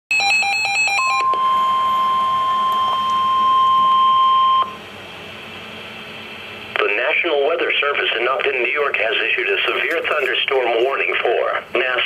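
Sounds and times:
steady alarm tone: 0.1s - 6.8s.

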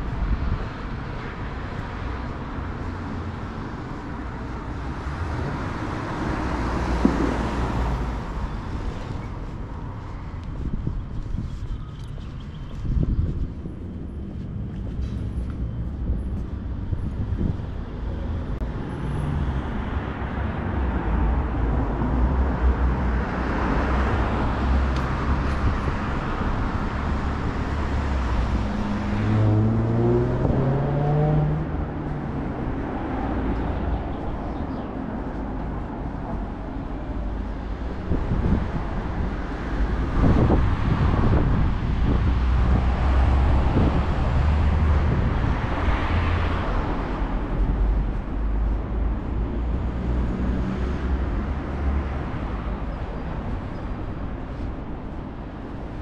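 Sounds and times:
cars passing by: 0.0s - 56.0s
vehicle engine speeding up: 28.6s - 32.3s.

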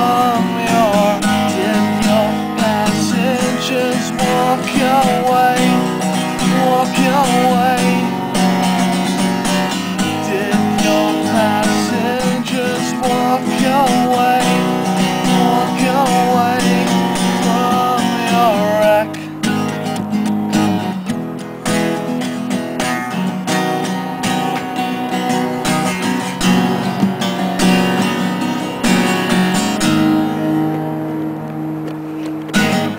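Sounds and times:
man singing: 0.0s - 19.8s
acoustic guitar strummed: 0.0s - 32.9s.

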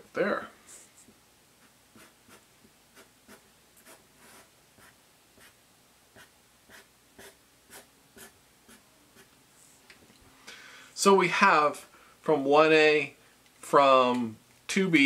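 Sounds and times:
marker drawing on paper: 0.7s - 9.3s.

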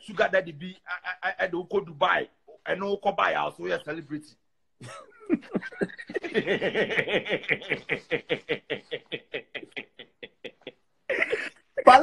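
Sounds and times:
man laughing: 4.8s - 11.8s.

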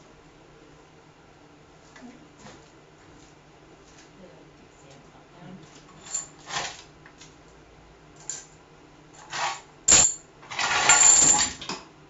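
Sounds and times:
metal objects clinking: 9.2s - 11.7s.

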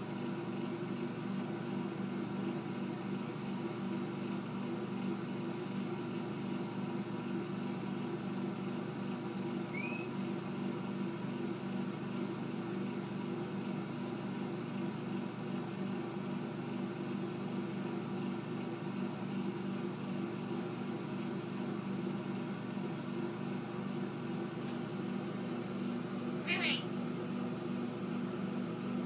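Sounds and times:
fan motor humming: 0.0s - 29.0s
parrot chirp: 9.7s - 10.1s, 26.5s - 26.8s.

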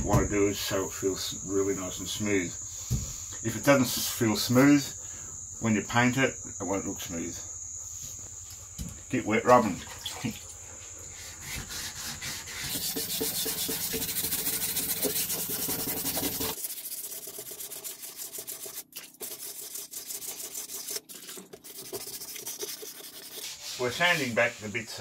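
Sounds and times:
high insect trill: 0.0s - 25.0s
sandpaper rubbing on metal: 11.1s - 25.0s.

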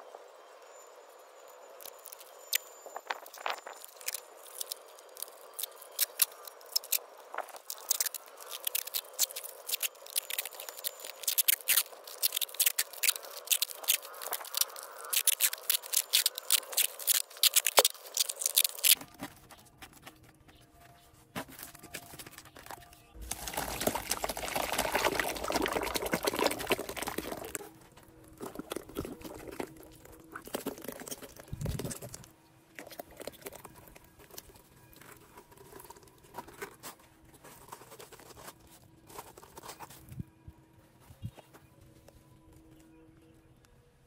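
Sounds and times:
adhesive tape ripping off roll: 7.6s - 19.0s.

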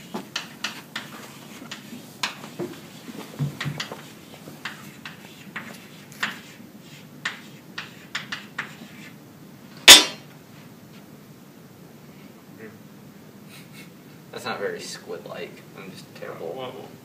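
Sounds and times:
chalk scraping on blackboard: 0.0s - 9.2s.

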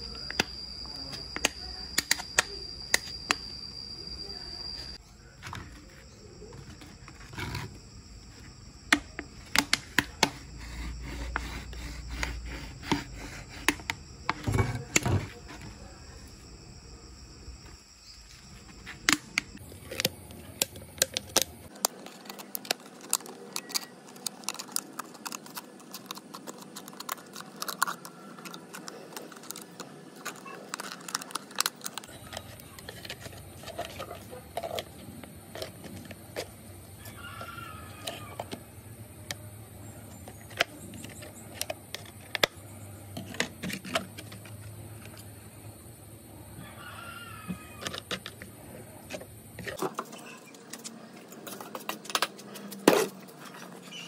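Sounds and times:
plastic bottle crackling: 21.2s - 34.8s.

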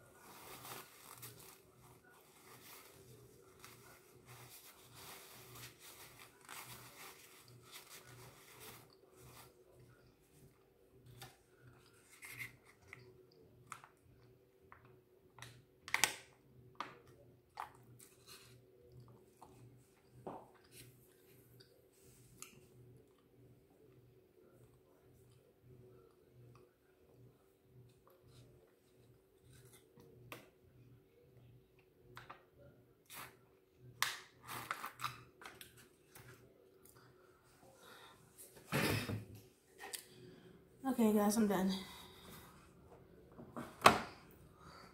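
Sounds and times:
faint steady hum: 0.0s - 44.9s
foil pouch crinkling: 0.1s - 9.5s.

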